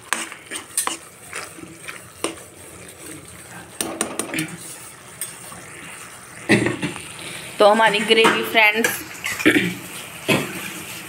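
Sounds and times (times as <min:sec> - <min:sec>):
metal spoon stirring gravy: 0:00.0 - 0:05.8.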